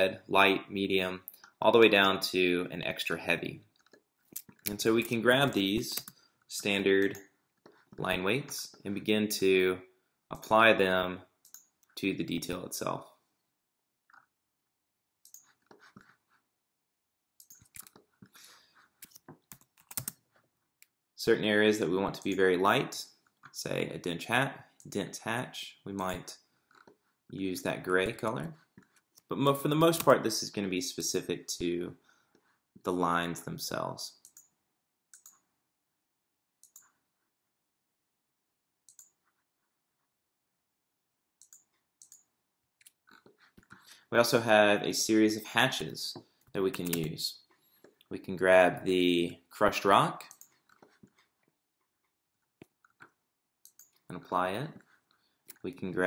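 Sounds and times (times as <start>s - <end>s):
computer mouse clicks: 11.4s - 12.0s, 15.2s - 16.0s, 17.4s - 18.1s, 19.0s - 20.2s, 34.2s - 35.4s, 36.6s - 37.0s, 38.9s - 39.2s, 41.4s - 43.8s, 46.4s - 47.2s, 52.6s - 54.0s
keyboard keys clicking: 19.0s - 20.2s.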